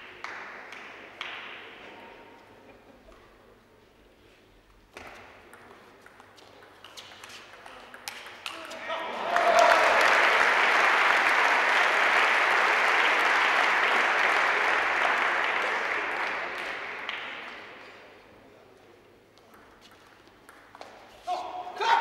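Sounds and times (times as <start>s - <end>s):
ball clicking on bat and table: 5.0s - 8.6s
spectators applauding: 9.0s - 17.6s.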